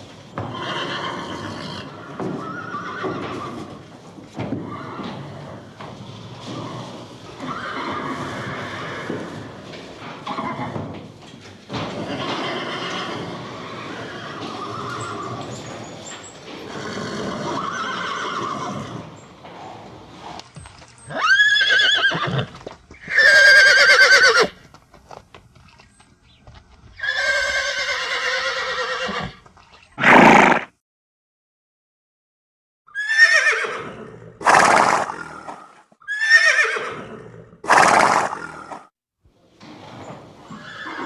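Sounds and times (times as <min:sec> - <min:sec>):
horse neighing: 0:00.4 - 0:03.9, 0:04.5 - 0:10.9, 0:11.9 - 0:20.4, 0:21.0 - 0:24.6, 0:27.0 - 0:29.4, 0:30.0 - 0:30.7, 0:32.9 - 0:38.9, 0:40.4 - 0:41.0.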